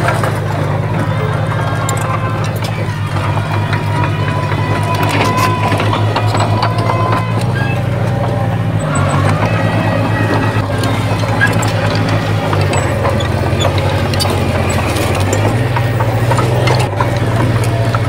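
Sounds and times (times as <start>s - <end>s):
heavy diesel engine running: 0.0s - 18.0s
metal squeaks: 0.0s - 18.0s
metallic clanks: 0.0s - 18.0s.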